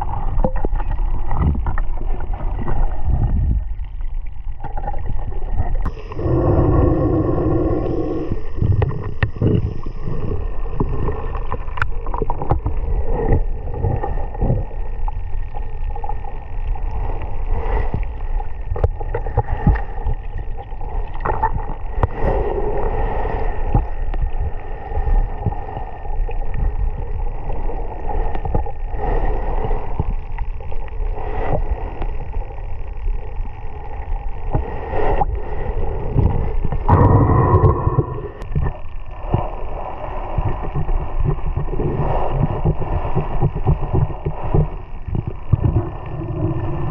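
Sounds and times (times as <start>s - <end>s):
water sloshing and bubbling: 0.0s - 46.9s.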